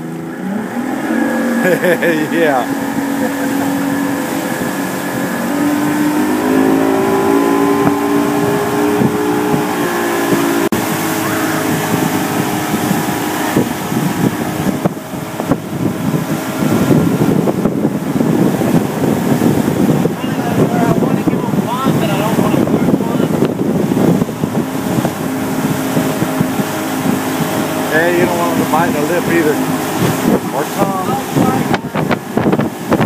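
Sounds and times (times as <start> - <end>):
outboard motor droning: 0.0 - 33.0
water rushing: 0.0 - 33.0
wind buffeting microphone: 0.0 - 33.0.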